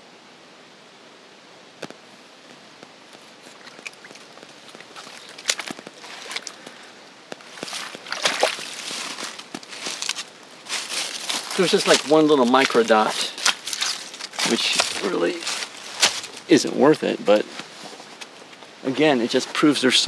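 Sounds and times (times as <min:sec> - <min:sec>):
footsteps in dry leaves: 0:03.2 - 0:19.7.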